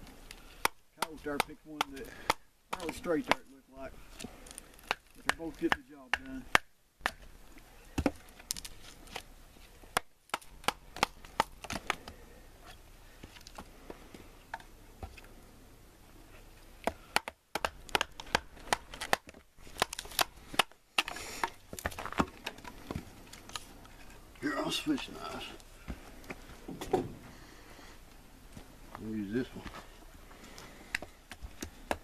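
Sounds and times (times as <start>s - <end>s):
wood splitting: 0.2s - 12.2s, 16.8s - 27.1s, 30.9s - 32.0s.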